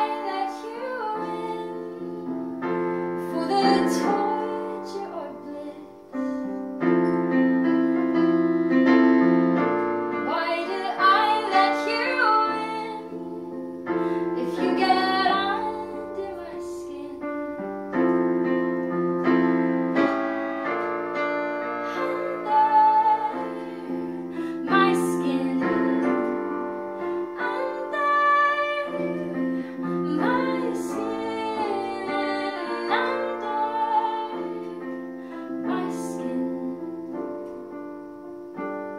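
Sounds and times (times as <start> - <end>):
woman singing: 0.0 - 6.2, 10.2 - 17.6, 21.8 - 37.4
keyboard piano chords: 0.0 - 38.9.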